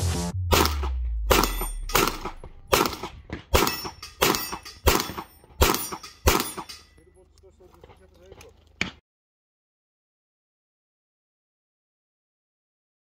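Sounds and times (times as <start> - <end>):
pistol shots with echo: 0.5 - 6.8.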